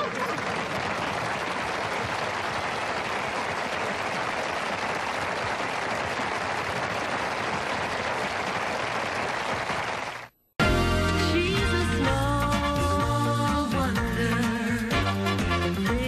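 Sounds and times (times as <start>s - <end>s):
audience applauding: 0.0s - 10.4s.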